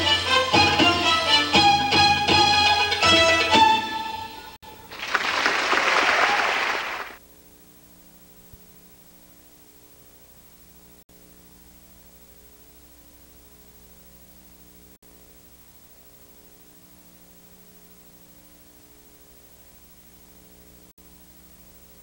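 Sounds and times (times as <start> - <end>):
faint steady hum: 4.1 - 22.0
audience applauding: 4.7 - 7.2.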